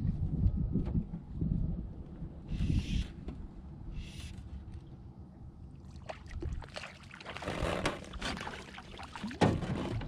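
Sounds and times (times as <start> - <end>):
water splashing: 5.8 - 10.0.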